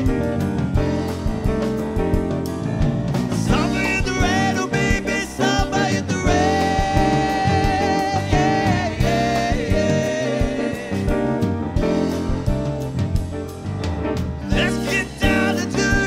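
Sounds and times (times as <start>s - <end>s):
bass guitar: 0.0s - 16.0s
drum kit: 0.0s - 16.0s
keyboard: 0.0s - 16.0s
voices singing: 3.4s - 12.8s, 14.5s - 16.0s.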